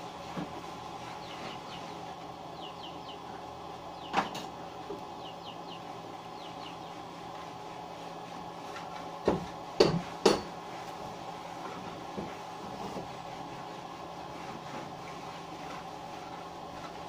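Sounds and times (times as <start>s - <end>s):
hand tool knocking on wood framing: 9.2s - 10.5s.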